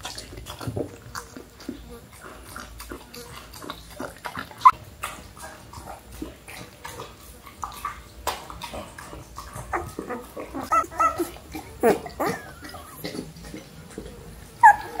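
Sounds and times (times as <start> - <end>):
puppies grunting: 0.0 - 15.0
puppies suckling: 0.0 - 15.0
puppy squeak: 10.7 - 11.3, 14.6 - 15.0.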